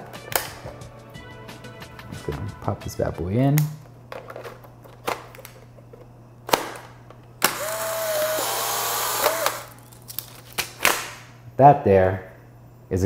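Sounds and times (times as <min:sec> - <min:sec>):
camera motor whirring: 0:07.4 - 0:09.8.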